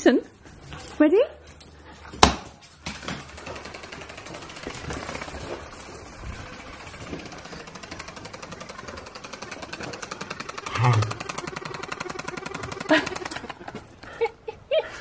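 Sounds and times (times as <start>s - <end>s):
toy vibration motor buzzing: 3.2s - 13.9s.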